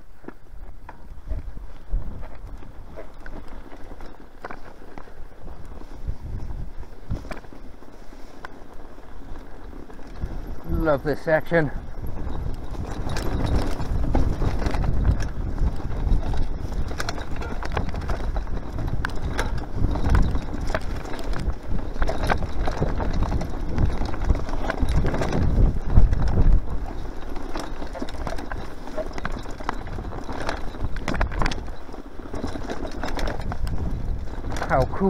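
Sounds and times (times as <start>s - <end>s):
bike tyres rumbling on grass: 0.0s - 35.0s
bike knocks and clatters: 12.0s - 35.0s.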